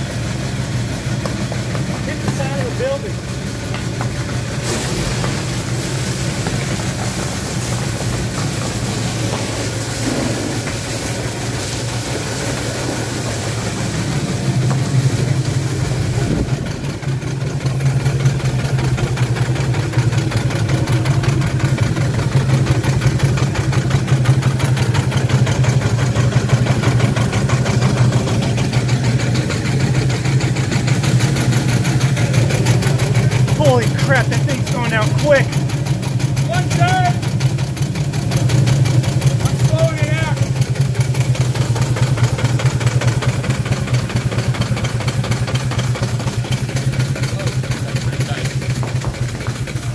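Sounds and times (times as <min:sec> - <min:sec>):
steam engine rapid beat: 0:00.0 - 0:49.9
steady steam hiss: 0:03.0 - 0:17.2.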